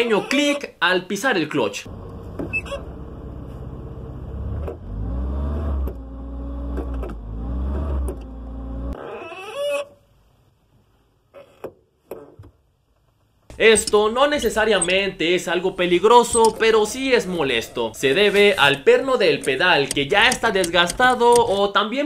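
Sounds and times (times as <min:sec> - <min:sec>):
low engine hum: 0:01.9 - 0:09.0
clutch pedal clicks: 0:13.5 - 0:15.2, 0:15.8 - 0:21.7.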